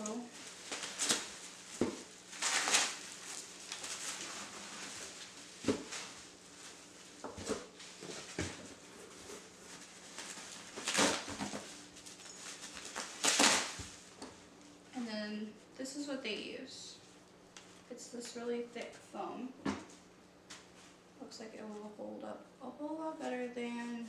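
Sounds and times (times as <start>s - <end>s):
plastic packaging rustling: 0.0s - 14.8s.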